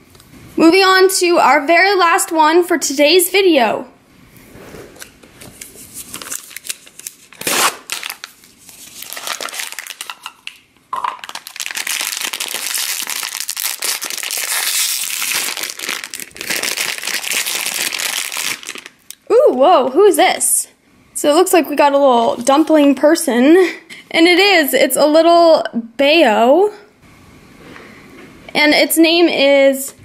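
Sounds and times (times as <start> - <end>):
foil packet crinkling: 5.5 - 19.1.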